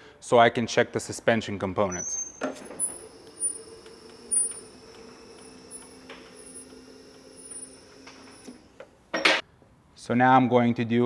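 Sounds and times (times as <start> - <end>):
vehicle lift humming: 1.8 - 9.4.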